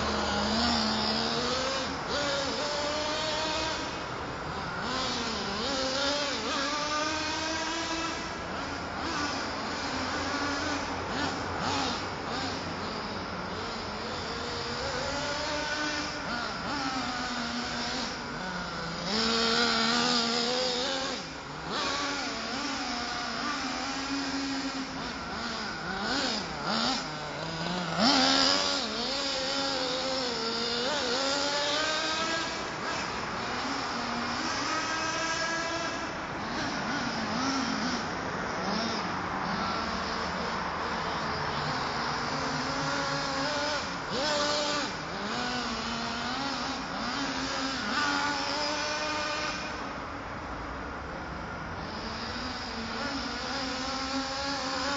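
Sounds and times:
rc truck engine revving: 0.0 - 54.9.

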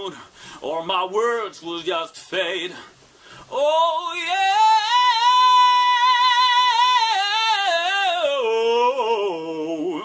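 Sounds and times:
man singing long high note: 3.5 - 10.0.

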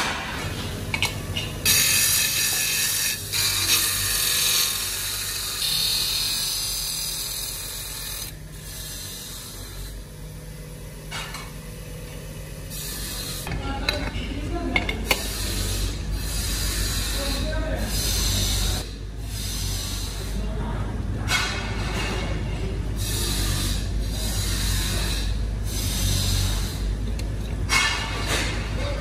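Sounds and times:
polishing wheel motor hum: 0.4 - 20.6, 22.9 - 27.6
metal on polishing wheel rasping hiss: 1.6 - 10.1, 12.6 - 13.5, 15.1 - 20.4, 23.0 - 26.9.

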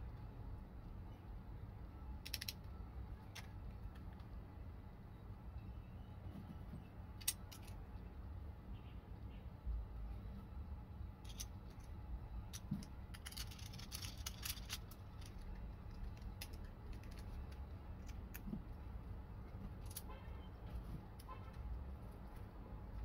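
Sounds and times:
metal parts clicking: 2.2 - 4.2, 7.2 - 7.8, 11.2 - 11.9, 12.5 - 18.5, 19.8 - 20.1.

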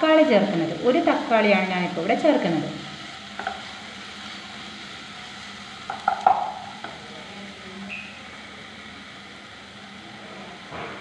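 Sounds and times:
vegetables sizzling in oil: 0.0 - 11.0
spatula knocking and scraping pan: 5.9 - 7.0.

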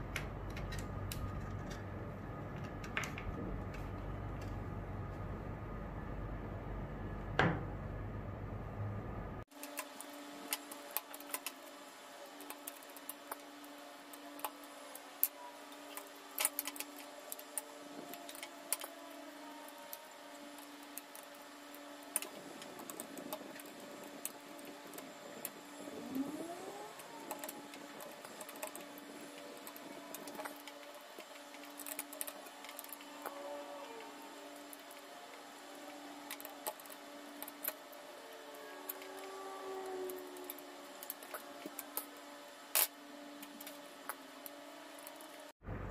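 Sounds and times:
low rumble: 0.0 - 9.4, 45.6 - 45.9
faint steady hum: 0.0 - 45.9
wires and terminals clicking: 9.5 - 11.7, 12.3 - 45.5.

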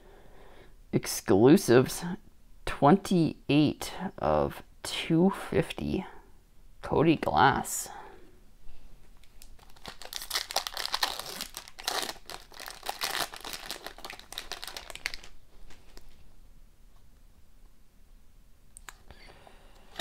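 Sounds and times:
foil wrapper tearing and crinkling: 9.3 - 15.4.

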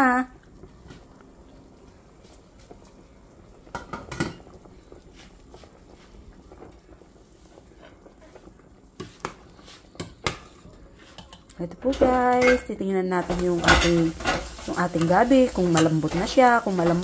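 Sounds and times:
soup bubbling: 0.3 - 11.6, 13.1 - 17.0
metal utensil clinking on pot: 11.2 - 12.7, 13.3 - 17.0.

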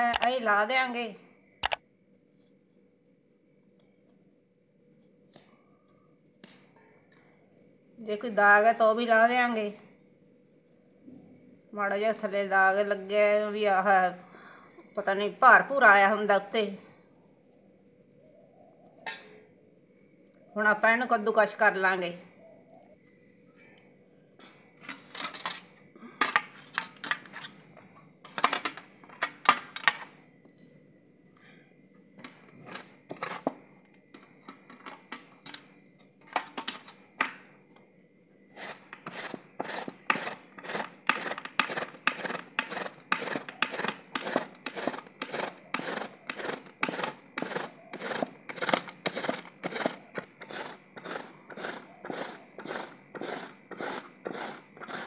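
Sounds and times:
gourd grating on metal grater: 32.6 - 33.5, 38.5 - 55.0.

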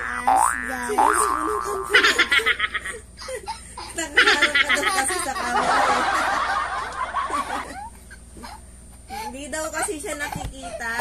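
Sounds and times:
girl laughing: 0.7 - 9.2.

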